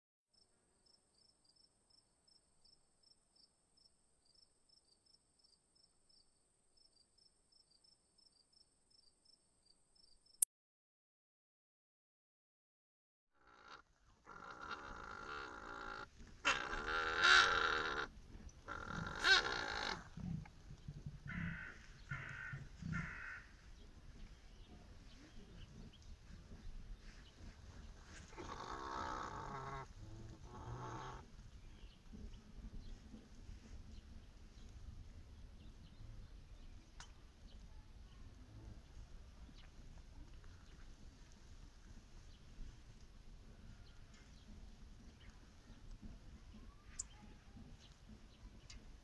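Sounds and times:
cricket chirping: 0.3s - 10.4s
bird cawing: 13.4s - 18.1s, 18.7s - 20.1s, 21.3s - 23.6s.

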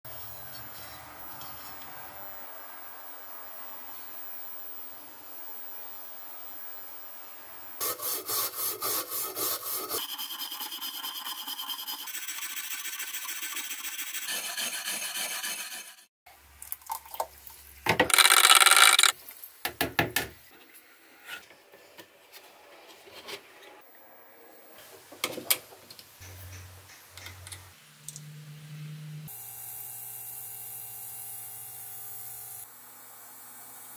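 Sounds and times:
file rasping on cast iron: 7.8s - 16.1s.

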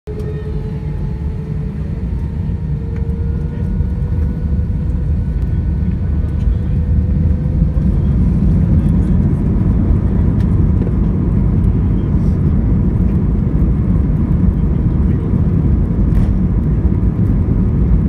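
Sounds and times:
faint rising whine: 0.1s - 12.4s
jet engines and runway rumble: 0.1s - 18.0s.

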